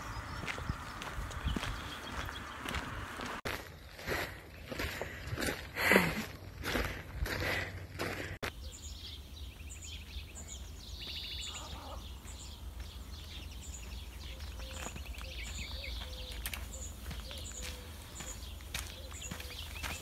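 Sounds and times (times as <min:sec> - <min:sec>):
steady low rumble: 0:00.0 - 0:09.9
songbirds chirping and trilling: 0:00.0 - 0:20.0.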